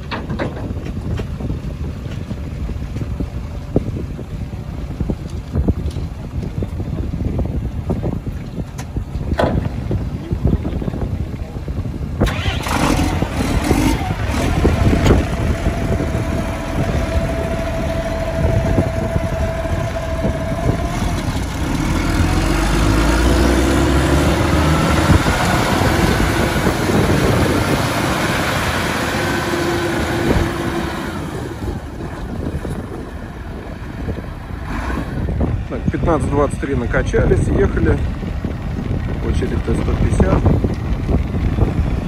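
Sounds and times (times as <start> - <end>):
tractor diesel engine running: 0.0 - 42.0
steady whine: 10.9 - 38.0.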